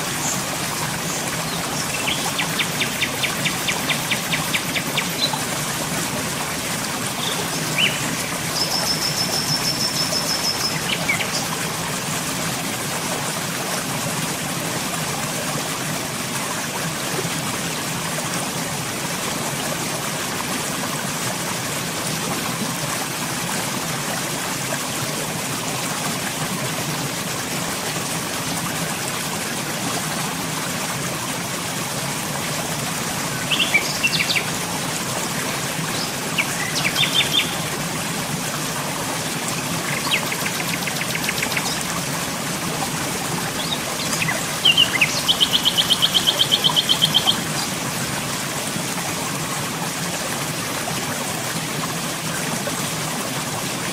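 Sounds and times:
birds chirping: 7.1s - 11.4s, 35.9s - 37.6s, 43.5s - 47.7s.

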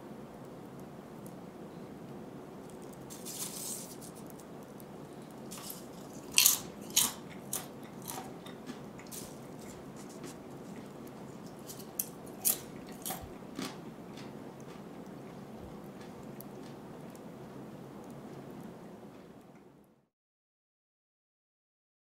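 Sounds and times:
popcorn crunching and rustling: 2.5s - 18.7s.

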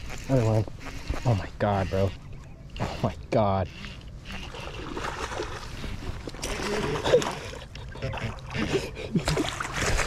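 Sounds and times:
fish thrashing in water: 4.4s - 10.0s.

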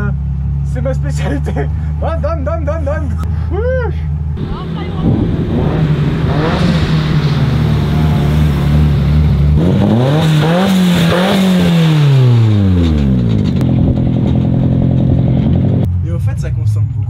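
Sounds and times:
car engine passing by: 4.4s - 12.6s.

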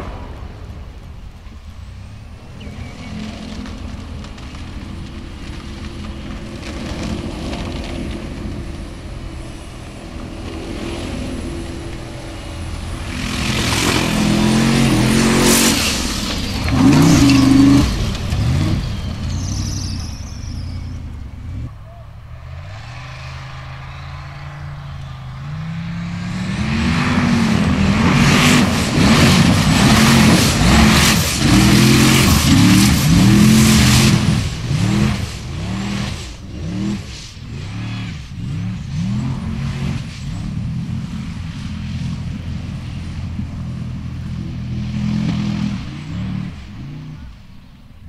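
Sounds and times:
buggy engine revving hard: 2.6s - 21.8s, 22.4s - 47.4s.

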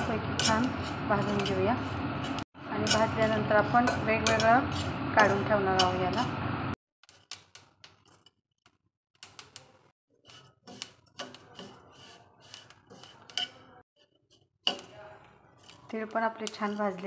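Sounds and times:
metal spatula scraping a pan: 0.0s - 6.3s, 10.1s - 17.0s.

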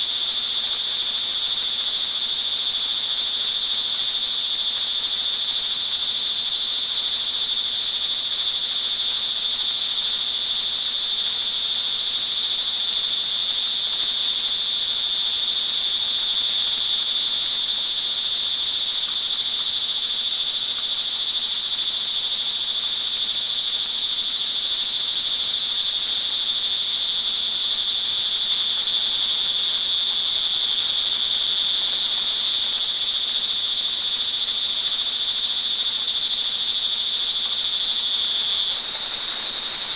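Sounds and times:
crickets chirring: 0.0s - 39.9s.

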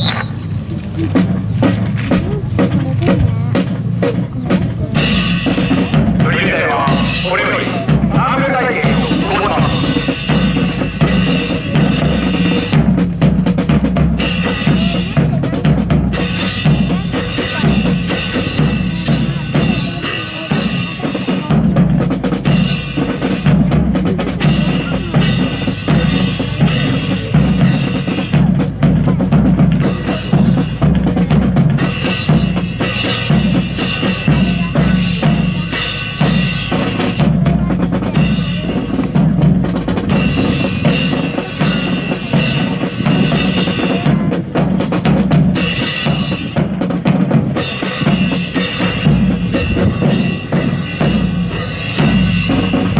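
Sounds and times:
marching snare and bass drum: 0.0s - 52.9s.

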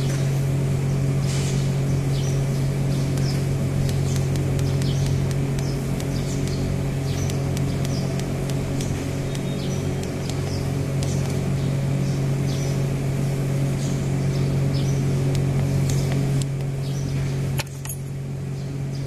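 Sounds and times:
electric motor hum: 0.0s - 19.0s
sharp click: 3.0s - 11.4s, 17.6s - 18.0s.

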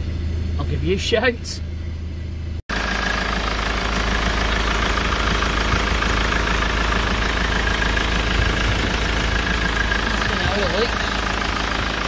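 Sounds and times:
diesel engine idling: 0.0s - 12.0s
person speaking: 10.1s - 11.2s.

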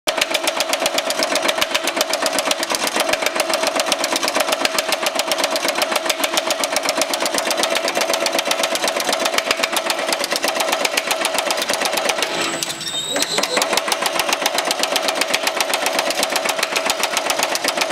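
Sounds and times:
power hammer striking sheet metal: 1.1s - 17.9s.

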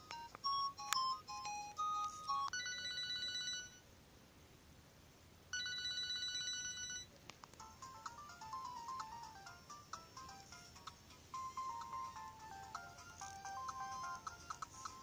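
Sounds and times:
held electronic ring tones: 0.0s - 3.8s, 5.5s - 7.1s
phone ringtone melody: 0.0s - 3.8s, 5.6s - 15.0s.

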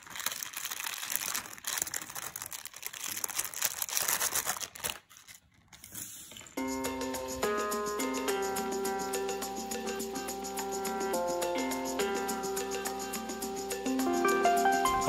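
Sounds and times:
plastic bag crinkling: 0.0s - 6.6s
plastic pieces clicking and rattling: 0.0s - 6.6s.

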